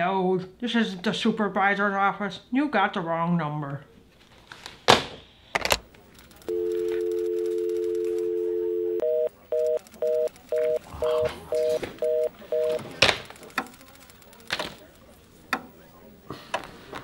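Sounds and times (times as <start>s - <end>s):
fast busy signal beeps: 6.5s - 12.8s
telephone dial tone: 6.5s - 13.0s.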